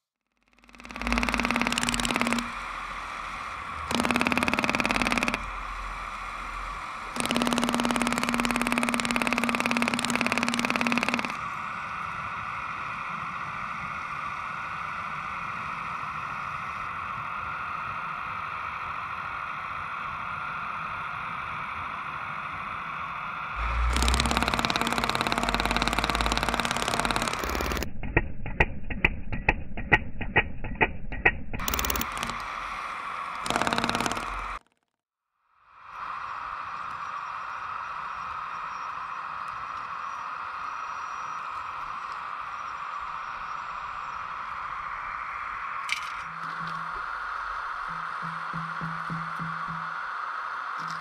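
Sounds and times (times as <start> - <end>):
model jackhammer chattering on asphalt: 0.4 - 3.0, 3.6 - 6.2, 7.1 - 11.4, 23.6 - 29.1, 29.8 - 32.6, 33.4 - 34.8
electric motor whine: 0.4 - 27.9, 31.6 - 34.7, 35.7 - 51.0.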